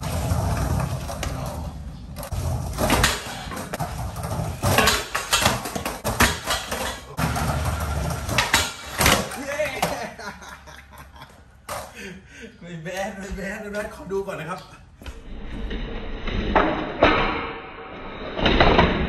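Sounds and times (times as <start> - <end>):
skateboard wheels rolling on tiles: 0.0 - 10.3
skateboard clacking and landing: 2.7 - 10.1.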